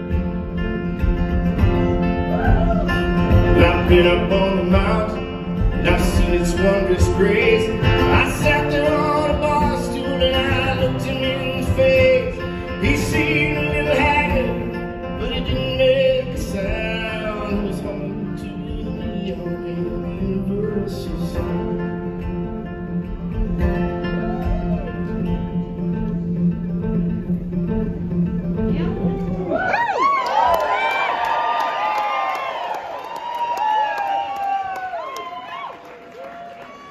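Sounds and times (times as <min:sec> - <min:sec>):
acoustic guitar playing: 0:00.0 - 0:30.2
person singing: 0:02.4 - 0:21.9.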